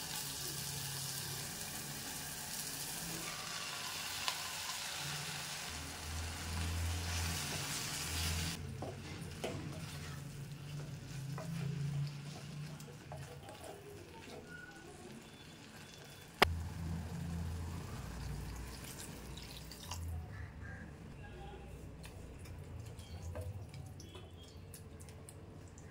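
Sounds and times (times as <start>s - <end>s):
frying sizzle: 0.0s - 19.7s.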